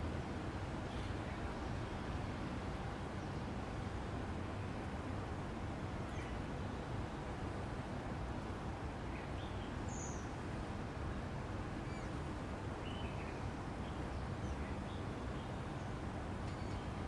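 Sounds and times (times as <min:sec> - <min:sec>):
small birds chirping: 0:09.1 - 0:10.4, 0:11.8 - 0:17.0.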